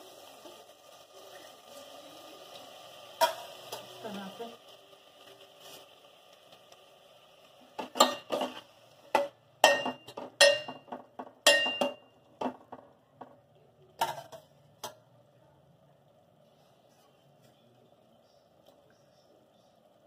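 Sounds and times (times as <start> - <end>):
metal ladle clinking on pot: 7.9 - 8.5, 9.2 - 12.5.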